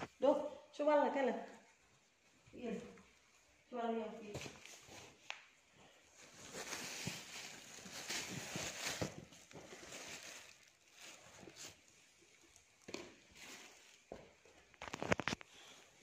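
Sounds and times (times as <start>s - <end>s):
rummaging through clothes and bags: 4.3s - 16.0s.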